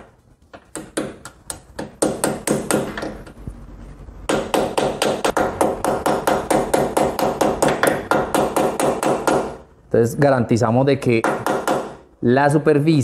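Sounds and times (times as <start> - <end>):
hammer striking metal: 4.3 - 9.6.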